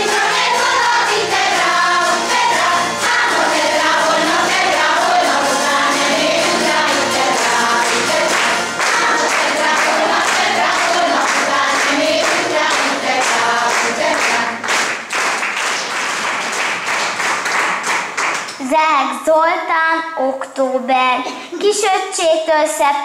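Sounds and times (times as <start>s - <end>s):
women's choir singing folk song: 0.0s - 14.8s
audience applause: 0.0s - 18.6s.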